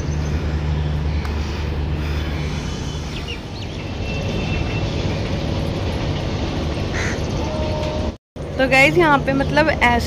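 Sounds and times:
bird chirps: 0:00.0 - 0:05.4
road traffic hum: 0:00.0 - 0:10.0.

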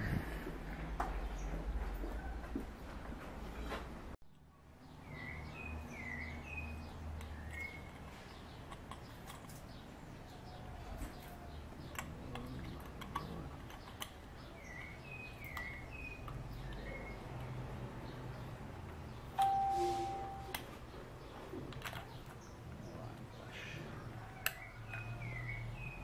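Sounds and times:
small bird chirping: 0:04.8 - 0:26.0
hands handling motorcycle parts: 0:07.2 - 0:09.9.

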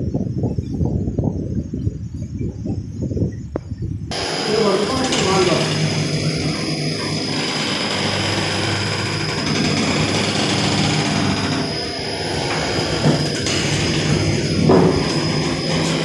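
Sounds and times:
machine drone with high whine: 0:04.1 - 0:16.0
short bumps: 0:04.1 - 0:16.0.

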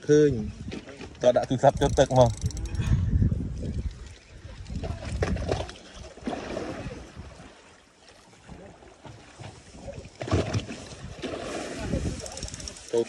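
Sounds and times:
wind on microphone: 0:00.2 - 0:07.5, 0:09.6 - 0:13.0
water sloshing against boat hull: 0:03.6 - 0:13.0.

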